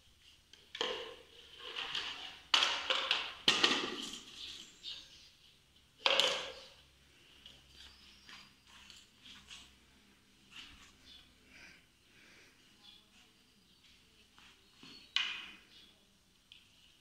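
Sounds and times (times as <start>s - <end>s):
plastic cones clattering on tiled floor: 0.3s - 5.0s, 5.9s - 6.8s, 14.8s - 15.8s.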